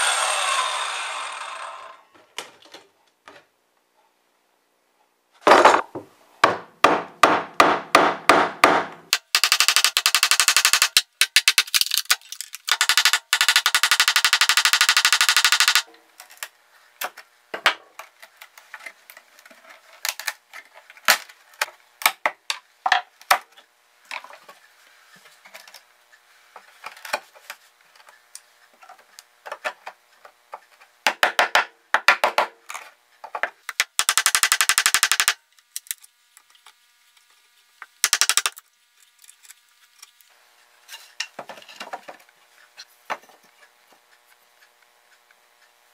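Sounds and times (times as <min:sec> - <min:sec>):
wood scraps knocking and scraping: 0:05.4 - 0:06.6.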